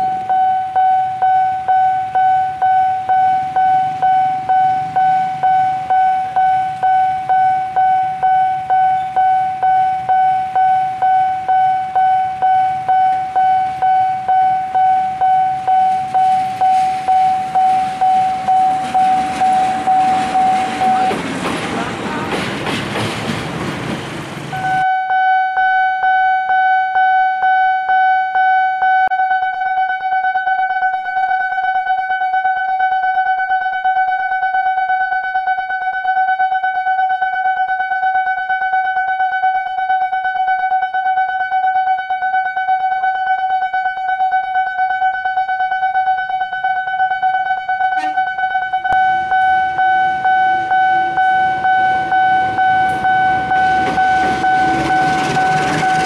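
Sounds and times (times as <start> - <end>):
level crossing alarm ringing: 0.0 - 22.8, 24.2 - 56.0
passing train rumble: 15.2 - 24.8, 49.1 - 56.0.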